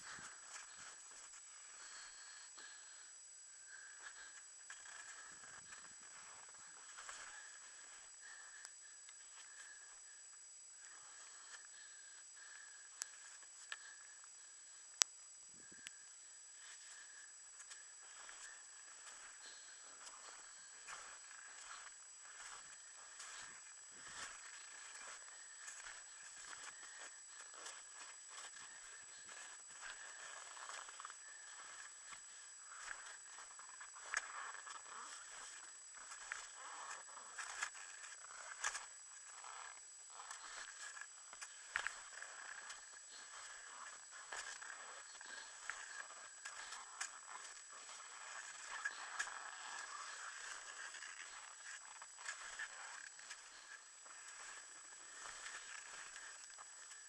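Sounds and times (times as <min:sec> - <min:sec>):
steady high whine: 0:00.0 - 0:57.0
footsteps crunching in snow: 0:16.7 - 0:38.1.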